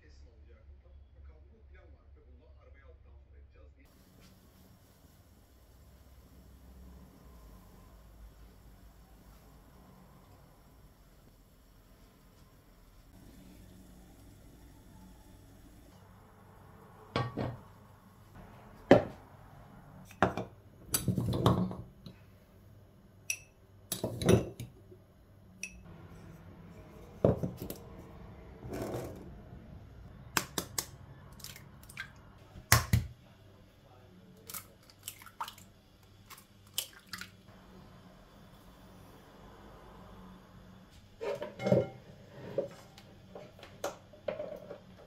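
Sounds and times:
glass jars set down on counter: 17.2s - 17.6s, 27.2s - 27.7s, 41.4s - 42.0s.

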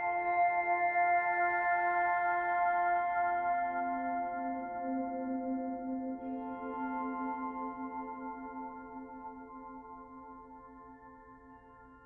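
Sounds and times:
slow ambient music: 0.0s - 12.0s.

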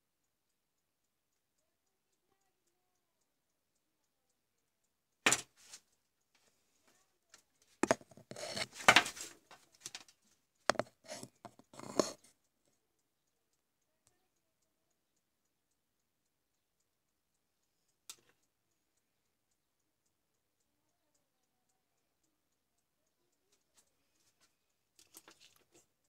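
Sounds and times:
clicking tapping and rubbing: 7.8s - 10.1s, 10.7s - 12.2s
hands handling small parts: 7.8s - 12.2s.

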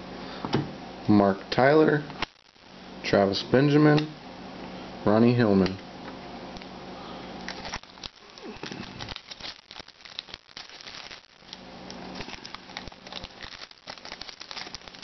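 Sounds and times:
foil wrapper tearing and crinkling: 7.4s - 15.0s.

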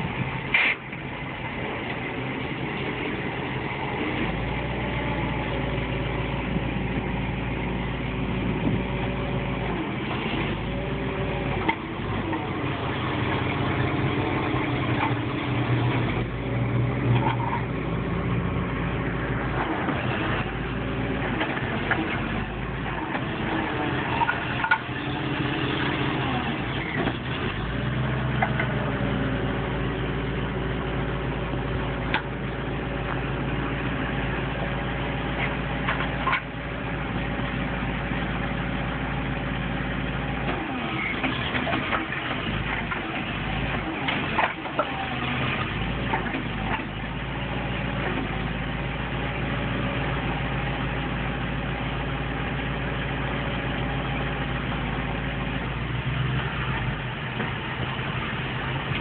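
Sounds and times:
truck engine revving: 2.6s - 37.1s.

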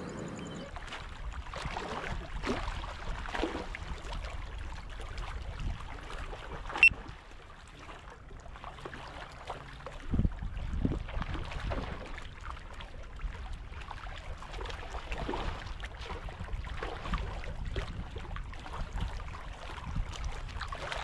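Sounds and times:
water lapping against rocks: 0.7s - 21.0s
wind buffeting microphone: 1.0s - 6.6s, 10.0s - 12.4s, 15.1s - 21.0s.

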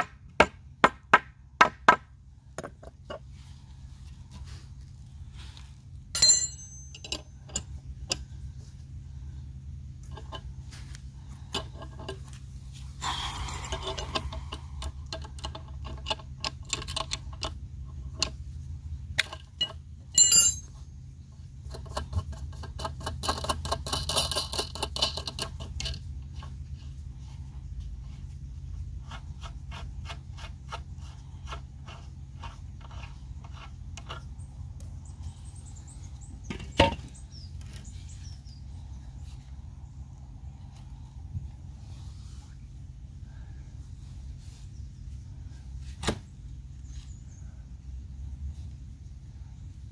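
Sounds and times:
sharp metallic clink: 6.2s - 7.7s, 19.6s - 20.8s.

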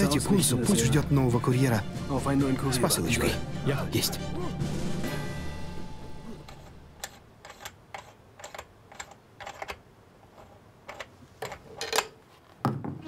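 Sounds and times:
knock on table: 12.6s - 13.0s.

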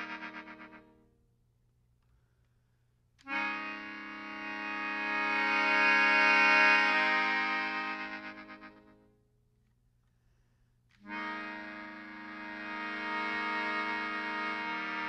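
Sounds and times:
accordion chords: 0.0s - 1.2s, 3.2s - 9.2s, 10.9s - 15.0s.

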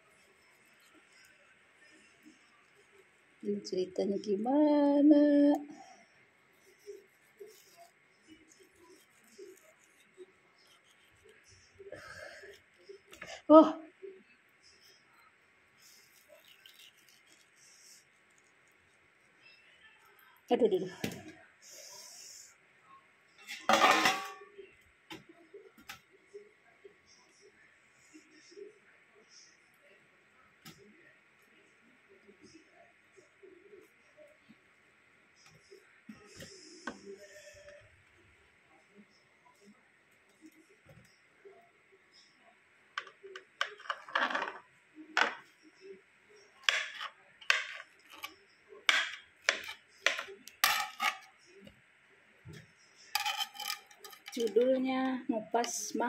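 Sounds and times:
utensils clattering: 23.4s - 24.5s, 48.9s - 51.3s, 53.2s - 54.7s
knife cutting soft fruit: 46.6s - 51.3s.

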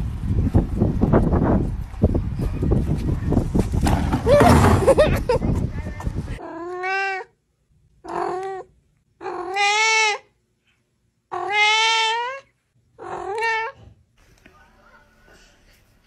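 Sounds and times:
cat meowing: 6.4s - 7.4s, 8.1s - 10.3s, 11.3s - 13.8s.

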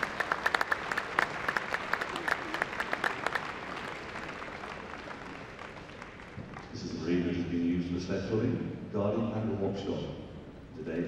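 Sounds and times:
audience clapping: 0.0s - 7.2s.

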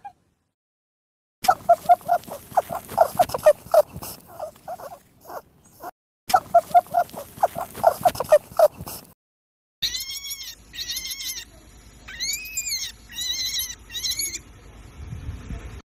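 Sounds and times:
rabbit high-pitched squeals: 1.4s - 9.0s, 9.8s - 14.4s
rabbit low squeaks: 1.5s - 9.1s.

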